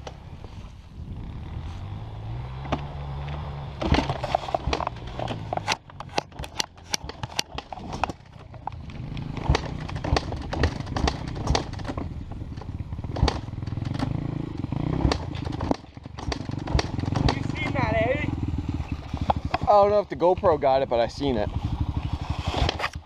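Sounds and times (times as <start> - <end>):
dirt bike engine running: 0.0 - 23.0
sharp clacks and knocks: 2.6 - 17.8.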